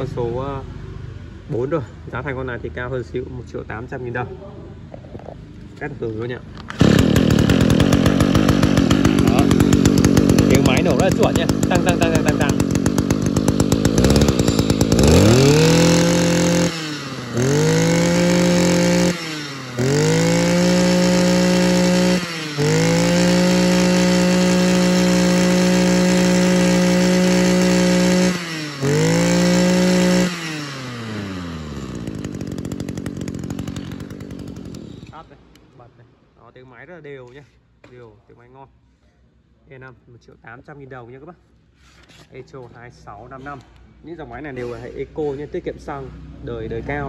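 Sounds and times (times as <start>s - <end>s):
brush cutter engine revving: 5.6s - 35.8s.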